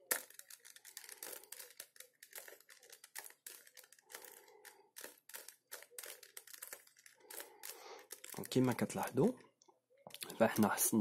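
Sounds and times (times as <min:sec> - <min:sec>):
plastic cube clicks and scrapes: 0:00.0 - 0:09.3.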